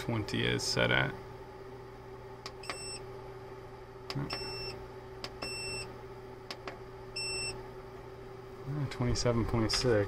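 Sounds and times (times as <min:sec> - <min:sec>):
steady low hum: 0:00.0 - 0:10.0
keypad beeps: 0:02.6 - 0:03.0, 0:04.2 - 0:04.8, 0:05.4 - 0:05.9, 0:07.2 - 0:07.6.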